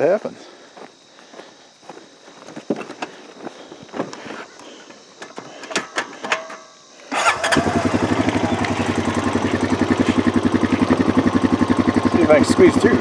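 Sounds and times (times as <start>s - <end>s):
atv engine starting and running: 7.1s - 13.0s.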